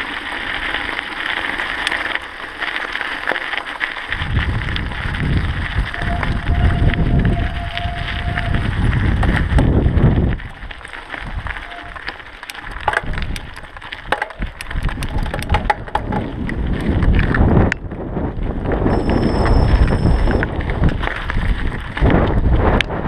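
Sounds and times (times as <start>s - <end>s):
tyres crunching on gravel: 0.0s - 17.7s
bike clicks and rattles: 0.0s - 23.0s
wind buffeting microphone: 4.1s - 12.1s, 12.7s - 23.0s.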